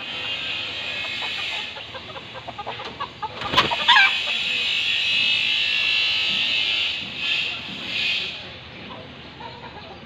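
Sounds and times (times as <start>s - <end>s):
chickens clucking: 0.0s - 10.0s
chicken squawk: 0.1s - 7.4s.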